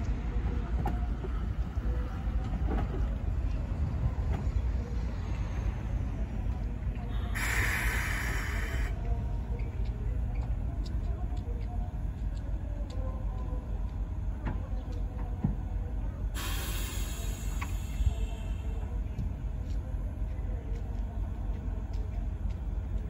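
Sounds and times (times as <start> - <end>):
steady low rumble: 0.0 - 23.0
steam locomotive hissing bursts: 7.2 - 9.0, 16.4 - 18.8.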